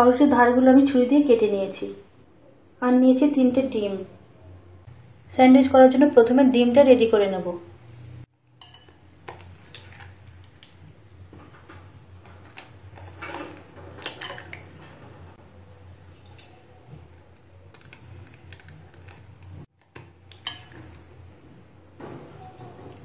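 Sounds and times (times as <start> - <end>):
clinks against glass bowl: 8.6 - 9.0
metal spoon tapping eggshells: 8.6 - 10.7, 17.7 - 21.1.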